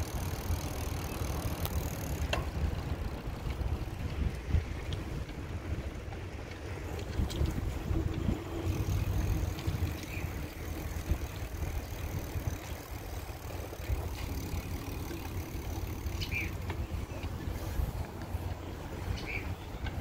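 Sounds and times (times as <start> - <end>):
bicycle tyres rolling on pavement: 0.0 - 20.0
wind rumble on microphone: 0.0 - 20.0
faint clicks: 0.9 - 5.4.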